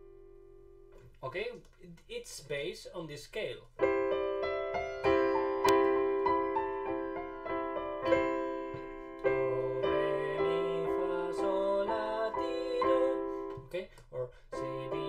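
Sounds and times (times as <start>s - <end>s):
piano playing: 3.8s - 13.8s, 14.5s - 15.0s.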